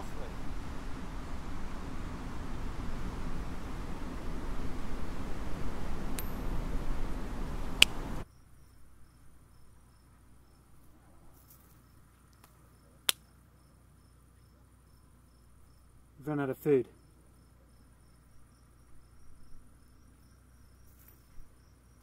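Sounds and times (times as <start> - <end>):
steady rushing noise: 0.0 - 8.2
crickets chirping: 0.0 - 22.0.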